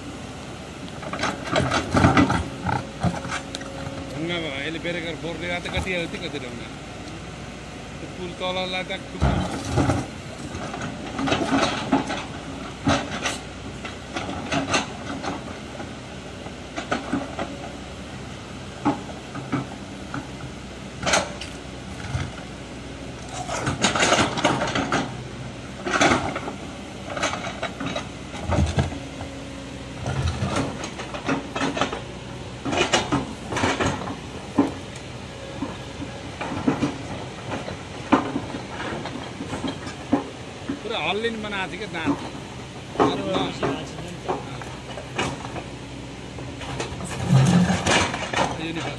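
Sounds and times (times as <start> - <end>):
excavator diesel engine: 0.0 - 48.9
steel bucket scraping rock: 46.8 - 48.9.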